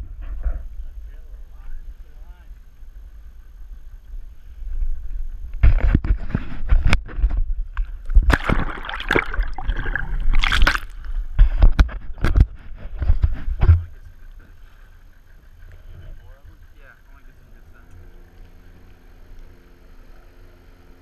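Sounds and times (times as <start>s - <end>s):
muffled underwater rush: 0.0s - 17.8s
water splashing and gurgling: 5.6s - 12.9s.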